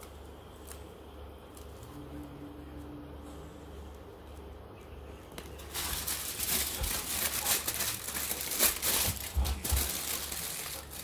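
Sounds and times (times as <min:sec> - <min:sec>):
aluminium foil crumpling: 0:05.4 - 0:11.0.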